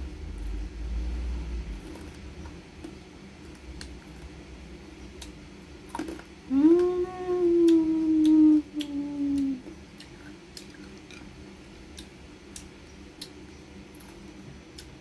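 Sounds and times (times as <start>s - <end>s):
woman humming: 6.5s - 9.7s
quiet chewing: 7.6s - 15.0s.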